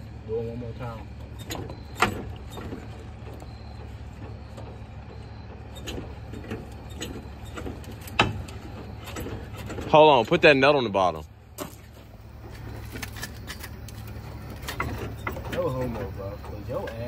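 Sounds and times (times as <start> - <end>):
steady low hum: 0.0 - 17.0
metal clicks and knocks: 12.5 - 17.0.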